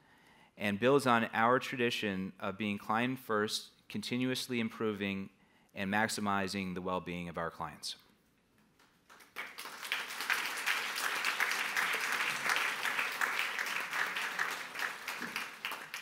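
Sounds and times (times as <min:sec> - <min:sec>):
audience applauding: 0:09.1 - 0:16.0.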